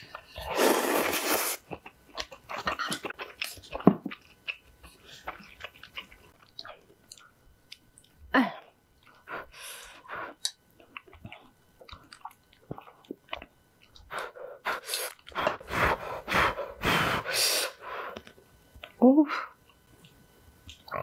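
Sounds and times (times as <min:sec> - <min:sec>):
chewing noodles: 0:00.1 - 0:08.2, 0:10.3 - 0:16.0
loud noodle slurps: 0:00.4 - 0:01.6.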